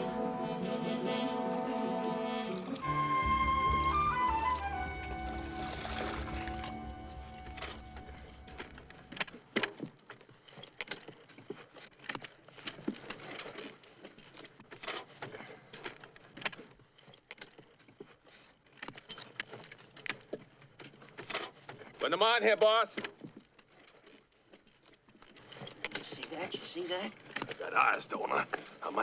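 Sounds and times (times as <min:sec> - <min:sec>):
hand tools striking dirt: 0:06.1 - 0:23.6.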